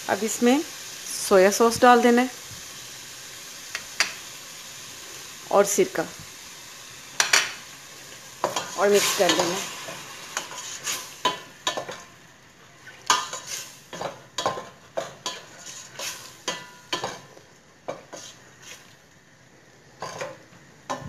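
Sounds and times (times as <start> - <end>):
chicken sizzling in oil: 0.0 - 21.0
wooden spatula scraping a pot: 8.4 - 12.0, 12.8 - 17.2, 17.9 - 19.0.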